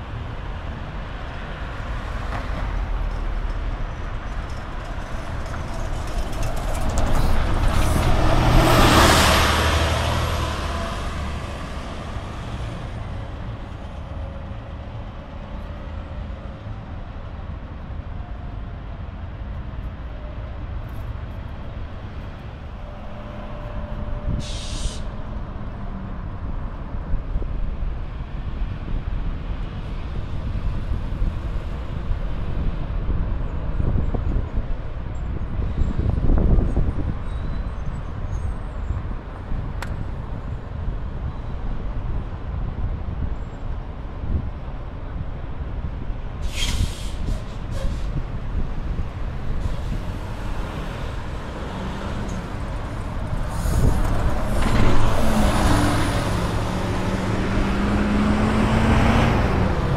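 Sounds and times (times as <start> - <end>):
street traffic: 0.0 - 59.9
vehicle passing close: 5.2 - 13.0, 48.8 - 59.9
bus brakes air hiss: 24.3 - 25.2, 46.4 - 48.2.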